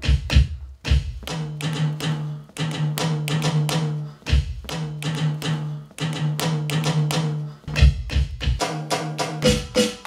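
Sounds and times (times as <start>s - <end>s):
electronic drum hits: 0.0s - 1.5s.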